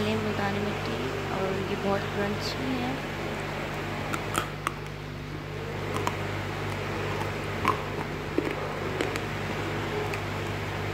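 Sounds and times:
steady low hum: 0.0 - 10.9
person chewing crunchy clay: 4.1 - 5.0, 5.8 - 10.6.

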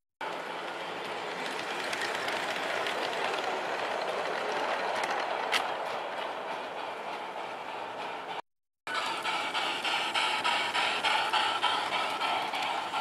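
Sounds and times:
clickety-clack over rail joints: 0.2 - 13.0
model train rolling hum: 0.2 - 13.0.

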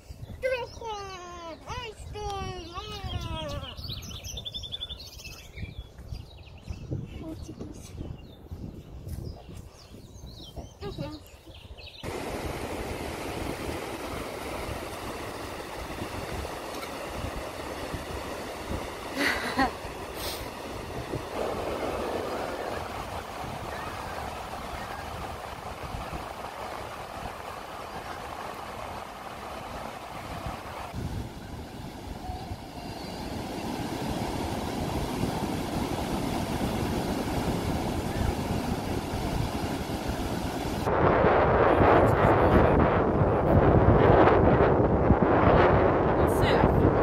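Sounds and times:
wind rumbling on microphone: 0.0 - 47.0
breaking surf: 12.0 - 47.0.

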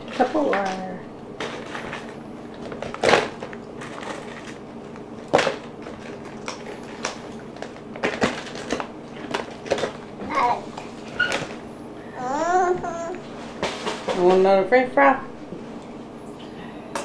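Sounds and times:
steady low hum: 0.0 - 17.0
plastic containers clattering: 5.2 - 10.0.

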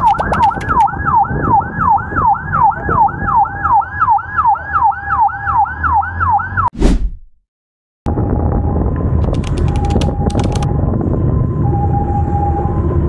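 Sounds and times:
low road rumble: 0.0 - 6.6, 8.1 - 13.0
emergency siren yelping: 0.0 - 6.7, 9.8 - 13.0
short whoosh: 6.8 - 7.4.

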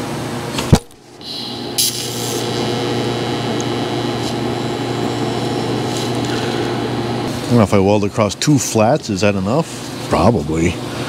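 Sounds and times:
welding arc buzzing hiss: 0.6 - 7.6.

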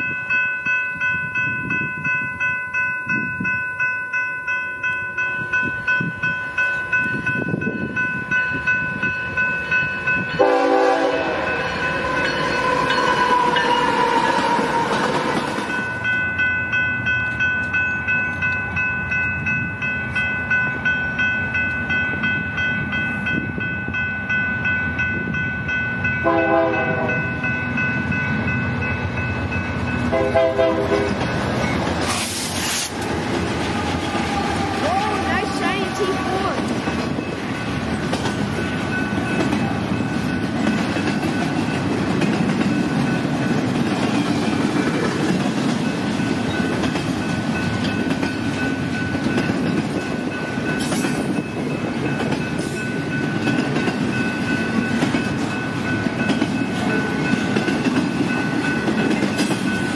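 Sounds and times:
railroad crossing bell ringing: 0.0 - 32.1, 32.9 - 59.9
rumble of passing train: 0.0 - 59.9
train horn blasts: 10.4 - 15.6, 26.2 - 27.3, 30.1 - 31.2.

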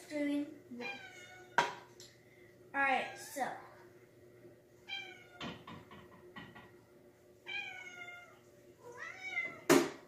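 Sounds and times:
cat meowing: 0.8 - 1.6, 4.9 - 5.4, 7.5 - 9.7.

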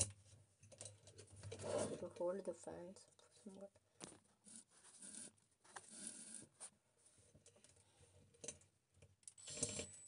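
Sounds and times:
drill bit scraping screw head: 9.4 - 9.9.

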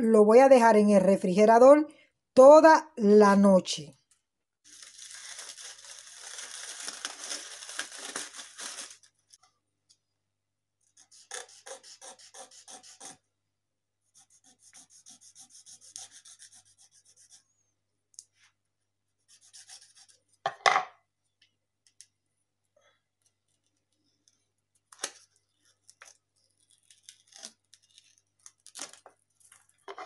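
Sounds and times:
aluminium foil crinkling: 4.6 - 9.4, 23.2 - 29.9
knife sawing through plastic: 11.0 - 13.2.

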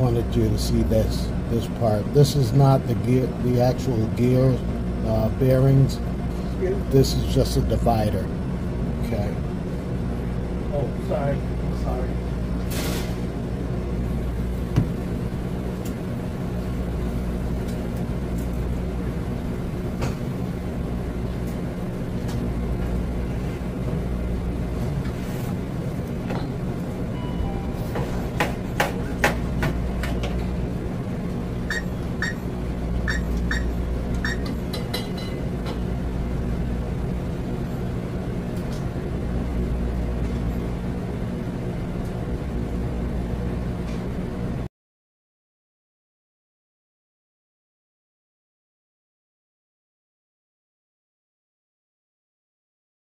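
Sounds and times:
low mechanical hum: 0.0 - 44.7.

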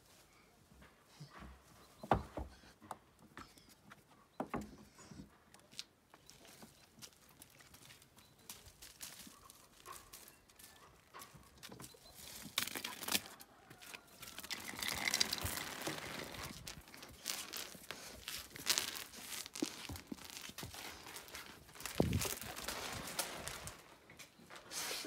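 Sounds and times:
footsteps on dirt and concrete: 5.6 - 24.8.

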